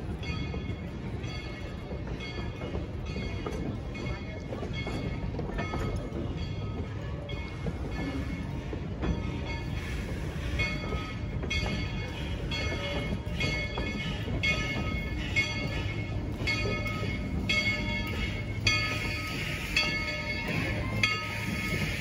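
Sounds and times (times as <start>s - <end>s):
moving train rumble: 0.0s - 22.0s
train bell ringing: 0.0s - 22.0s.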